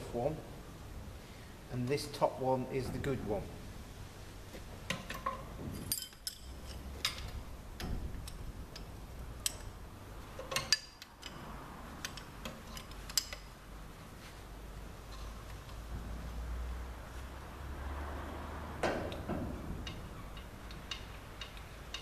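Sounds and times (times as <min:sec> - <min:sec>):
low steady hum: 0:00.0 - 0:22.0
metal parts clicking and clinking: 0:04.9 - 0:09.8, 0:10.4 - 0:13.5, 0:19.1 - 0:22.0.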